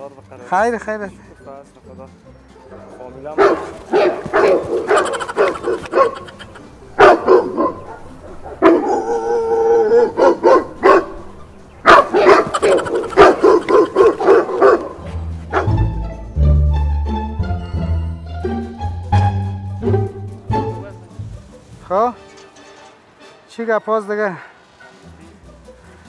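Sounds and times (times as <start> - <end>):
low string music: 0.0 - 9.9, 12.7 - 26.0
dog barking through loudspeaker: 2.6 - 6.3, 7.0 - 15.9.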